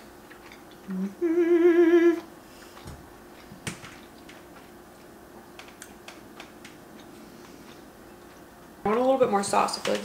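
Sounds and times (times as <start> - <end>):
person chewing food: 0.0 - 8.8
faint steady hum: 0.0 - 10.0.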